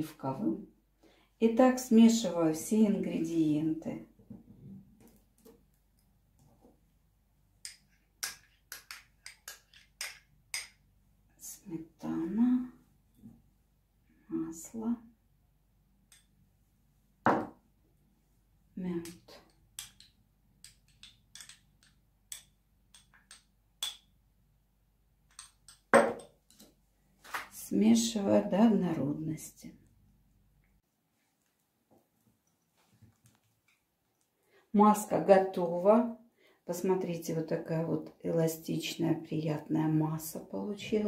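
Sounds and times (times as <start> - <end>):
metal spoon clinking on glass bowls: 19.8 - 24.1, 25.3 - 26.4.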